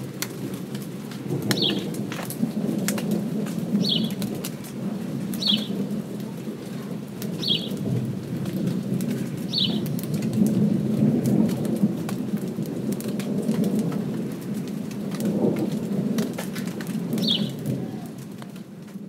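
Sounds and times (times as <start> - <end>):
distant thunder rumble: 0.0 - 19.0
raindrops ticking: 0.0 - 19.0.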